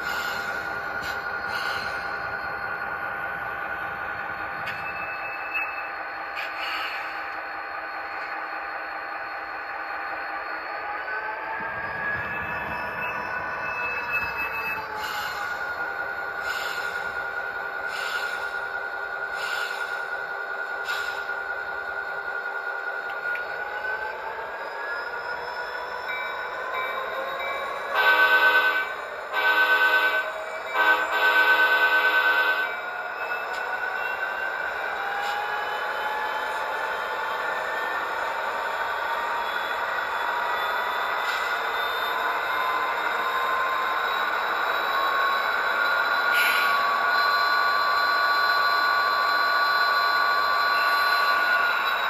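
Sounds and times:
model locomotive engine hum: 14.2s - 52.0s
model locomotive air horn blasts: 27.9s - 32.8s.

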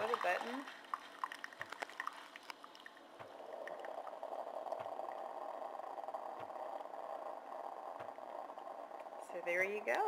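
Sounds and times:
coffee dripping into ceramic mug: 0.0s - 9.3s
coffee brewer hum: 3.0s - 10.0s.

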